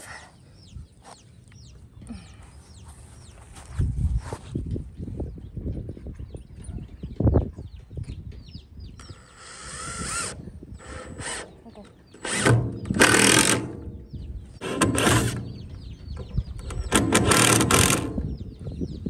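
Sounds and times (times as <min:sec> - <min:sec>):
baby chicks peeping: 0:00.3 - 0:19.0
cordless drill driving screws: 0:09.0 - 0:11.6, 0:12.2 - 0:13.8, 0:14.6 - 0:15.5, 0:16.7 - 0:18.2.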